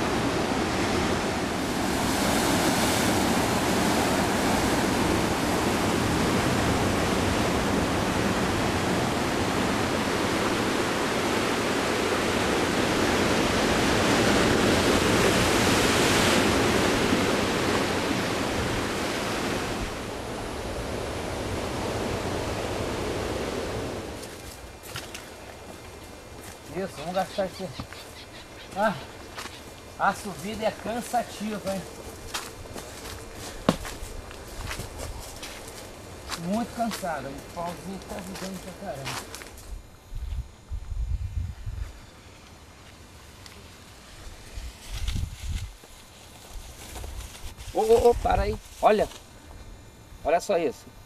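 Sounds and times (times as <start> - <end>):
sea surf breaking on rocks: 0.0 - 25.5, 29.8 - 32.5.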